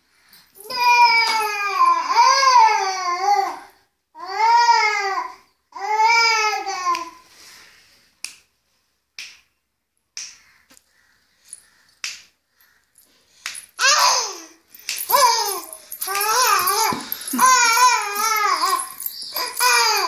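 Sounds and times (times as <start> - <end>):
infant babbling: 15.1 - 20.0.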